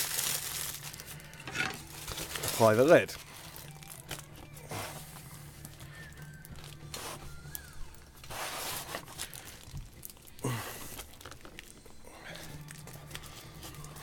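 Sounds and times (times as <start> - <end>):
paper and wood rustling: 1.0 - 10.0.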